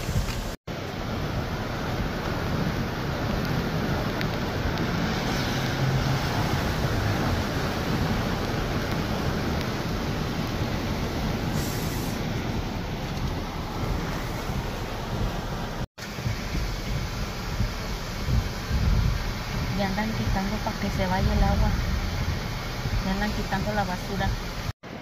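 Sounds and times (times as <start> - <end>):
floodwater rushing: 0.0 - 25.0
heavy rain: 0.0 - 25.0.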